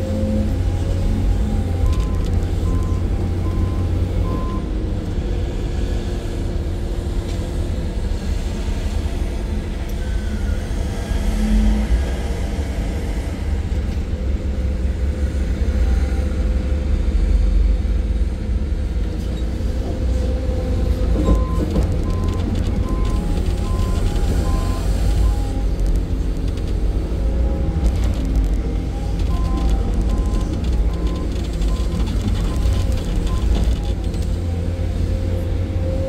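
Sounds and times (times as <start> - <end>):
excavator diesel engine rumbling: 0.0 - 36.0
reversing alarm beeping: 21.2 - 25.7.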